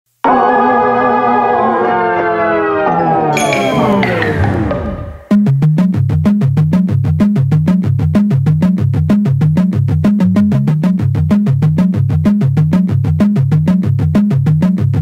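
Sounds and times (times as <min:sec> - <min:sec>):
synthesizer bass line: 0:03.3 - 0:05.4.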